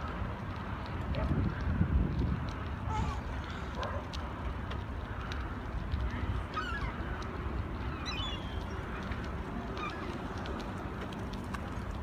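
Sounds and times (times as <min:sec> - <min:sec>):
gulls calling: 0:06.2 - 0:10.8.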